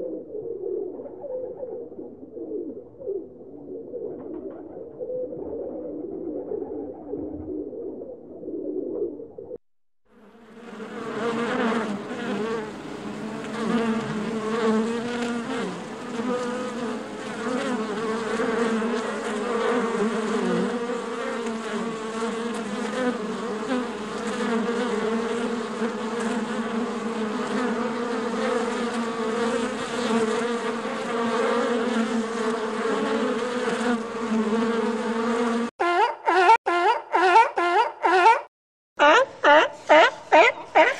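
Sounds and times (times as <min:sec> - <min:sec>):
honeybees buzzing: 0:10.2 - 0:35.7.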